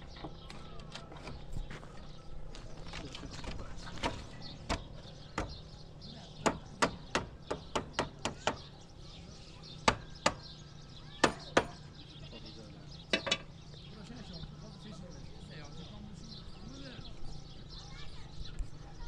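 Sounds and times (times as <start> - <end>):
hand tools knocking: 3.9 - 5.7, 13.1 - 13.5.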